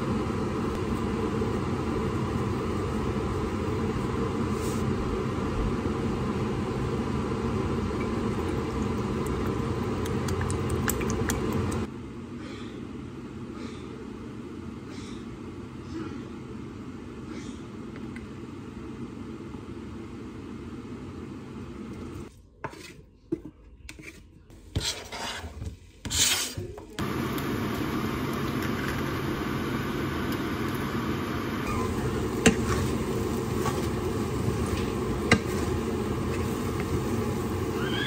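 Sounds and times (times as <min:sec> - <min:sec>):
wooden spoon stirring soup: 0:22.2 - 0:26.8, 0:31.9 - 0:37.8
food sizzling in a wok: 0:27.0 - 0:38.0.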